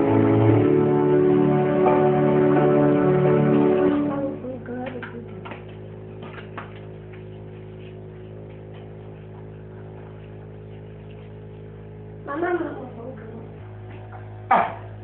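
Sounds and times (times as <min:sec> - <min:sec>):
music: 0:00.0 - 0:06.1
electrical mains hum: 0:00.0 - 0:15.0.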